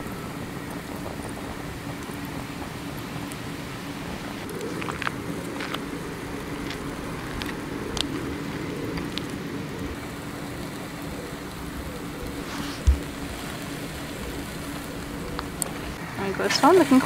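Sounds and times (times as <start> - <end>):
sharp crackles and pops: 0.0 - 17.0
steady low hum: 0.0 - 17.0
chicken skewers sizzling: 5.4 - 17.0.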